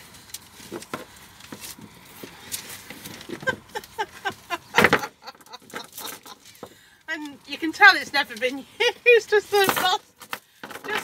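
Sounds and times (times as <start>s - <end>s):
rope rustling: 0.0s - 5.0s.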